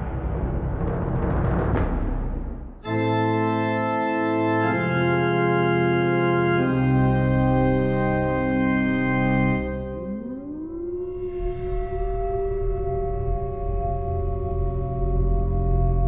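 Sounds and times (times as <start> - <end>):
rumbling noise: 0.0 - 2.9
sustained organ chords: 2.8 - 16.0.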